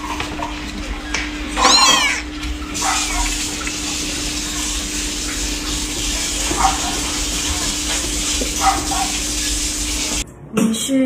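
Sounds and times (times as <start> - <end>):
kitten mewing: 1.6 - 2.3.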